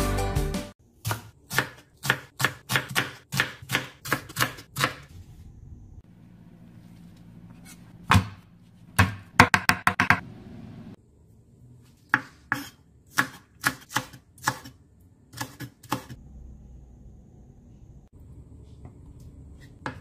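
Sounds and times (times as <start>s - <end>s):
knife chopping on cutting board: 1.0s - 5.1s, 12.1s - 14.8s.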